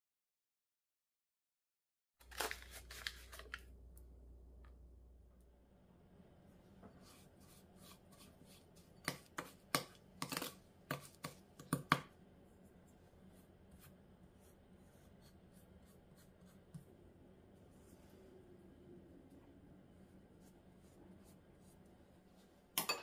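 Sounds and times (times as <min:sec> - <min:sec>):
spoon scraping glass bowl: 0:06.9 - 0:11.4.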